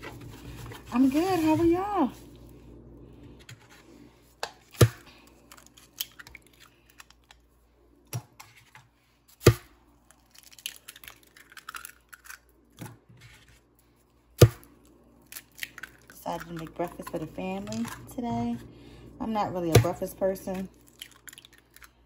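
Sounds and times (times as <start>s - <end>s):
eggs cracking on a plastic bowl: 4.4s - 7.4s, 9.4s - 13.1s, 14.4s - 18.0s, 20.6s - 22.0s
eggshell crackling: 5.1s - 7.4s, 10.0s - 12.8s, 14.9s - 18.0s, 20.6s - 22.0s.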